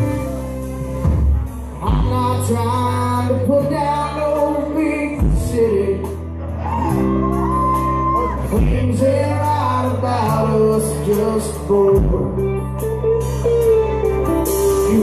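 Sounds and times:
rock band playing live: 0.0 - 15.0
person singing: 1.7 - 15.0.

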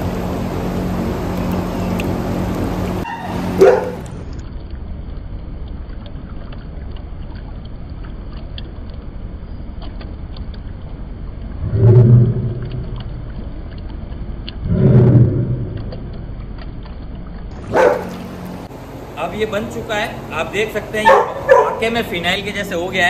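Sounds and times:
deep dog bark: 3.0 - 4.1, 17.6 - 18.3, 21.0 - 22.0
water sloshing in a plastic bucket: 15.4 - 18.7.

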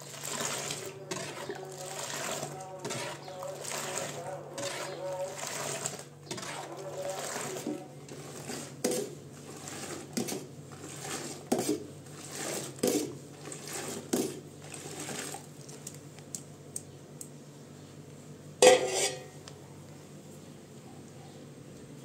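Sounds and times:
metal bowl scraping pots: 0.0 - 15.5, 18.6 - 19.4
milk pouring: 0.0 - 16.0.

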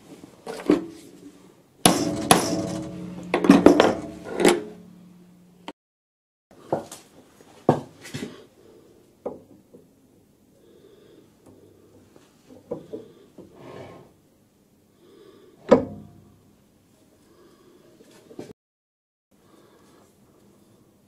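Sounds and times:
hand tools knocking on metal: 1.9 - 4.8
metallic ringing tone: 2.0 - 5.6.

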